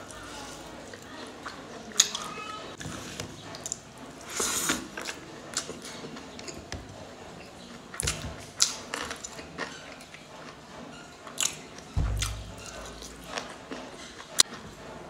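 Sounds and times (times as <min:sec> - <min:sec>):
fingers squishing rice and curry: 0:00.0 - 0:14.9
wet chewing and lip smacks: 0:00.9 - 0:02.4.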